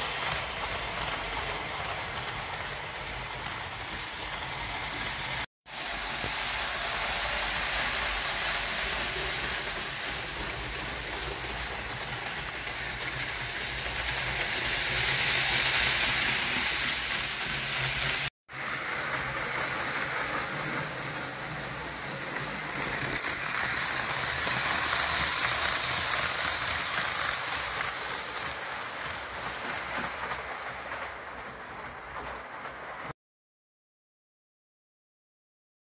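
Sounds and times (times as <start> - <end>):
model train wheels rattling: 7.1 - 33.1.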